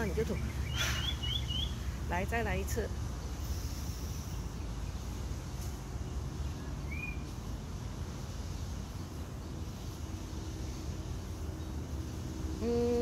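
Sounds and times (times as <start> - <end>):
bird chirp: 0.0 - 2.3, 3.1 - 7.7.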